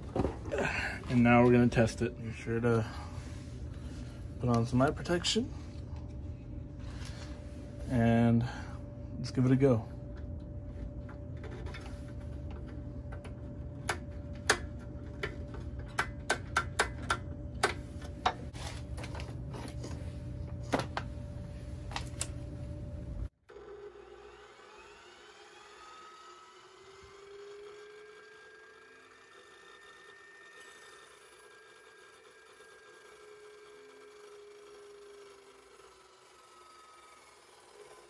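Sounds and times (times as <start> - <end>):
electrical hum: 0.0 - 24.0
saw blade spinning whine: 1.0 - 15.8, 22.6 - 38.0.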